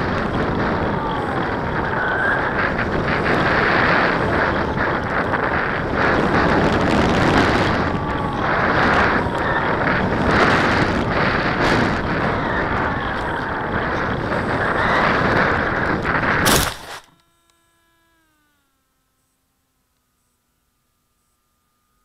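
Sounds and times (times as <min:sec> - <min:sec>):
wind rushing over microphone: 0:00.0 - 0:17.0
electric motor whine: 0:00.0 - 0:22.0.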